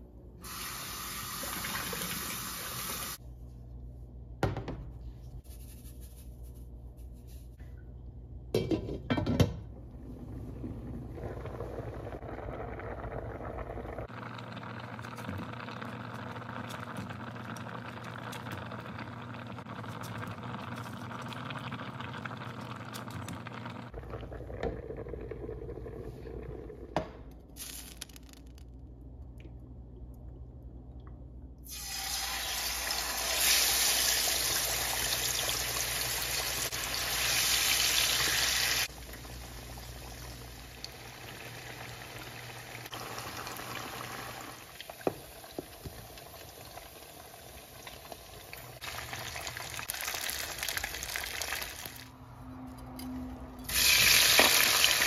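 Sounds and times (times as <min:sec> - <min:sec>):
pot boiling: 0:09.8 - 0:28.6, 0:31.6 - 0:52.2, 0:53.7 - 0:55.0
fish frying in oil: 0:46.0 - 0:52.0.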